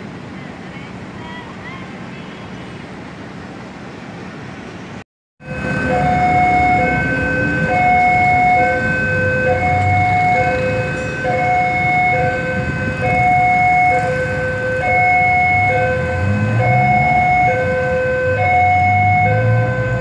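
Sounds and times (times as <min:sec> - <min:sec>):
road traffic: 0:00.0 - 0:20.0
level crossing two-tone alarm: 0:05.4 - 0:20.0.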